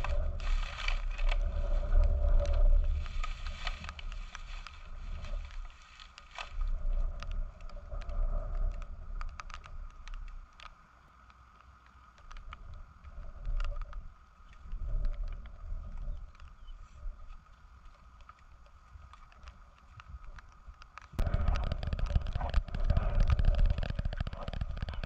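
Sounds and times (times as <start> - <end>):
wind buffeting microphone: 0.0 - 5.7, 20.0 - 25.0
paper and twigs crackling: 0.0 - 25.0.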